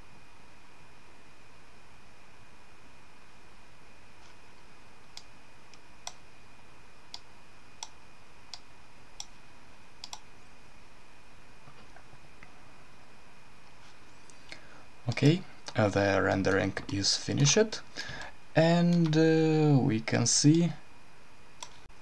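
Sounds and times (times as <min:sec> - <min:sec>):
computer mouse clicking: 0:05.1 - 0:06.2, 0:07.1 - 0:09.3, 0:10.0 - 0:10.3.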